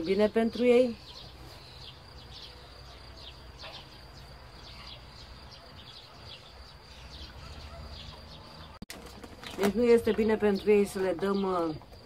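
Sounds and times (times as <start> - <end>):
small birds chirping: 0.0 - 12.0.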